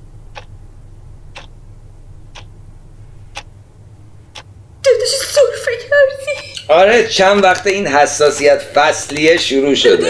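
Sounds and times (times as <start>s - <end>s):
clock ticking: 0.0s - 0.6s, 1.2s - 1.6s, 2.2s - 10.0s
low hum: 0.0s - 10.0s.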